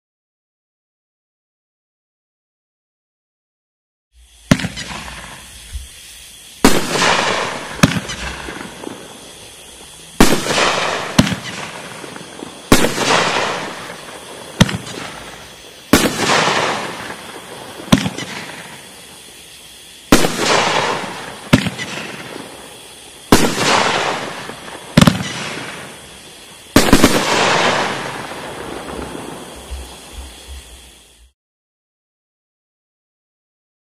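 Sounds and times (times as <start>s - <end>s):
loud firework bangs: 4.4s - 5.9s, 6.6s - 31.1s
firework launch thumps: 4.4s - 6.0s, 6.6s - 19.3s, 20.1s - 26.0s, 26.7s - 31.0s.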